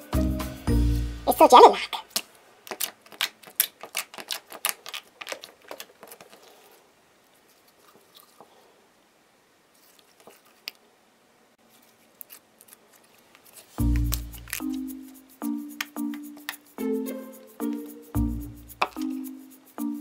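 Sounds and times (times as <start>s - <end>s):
slime clicking and squelching: 2.1s - 6.5s.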